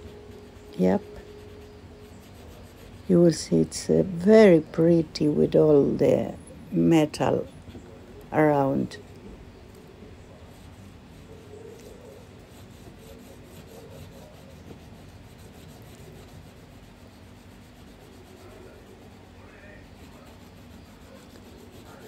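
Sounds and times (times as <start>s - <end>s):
marker rubbing on paper: 0.0s - 4.6s, 10.4s - 22.0s.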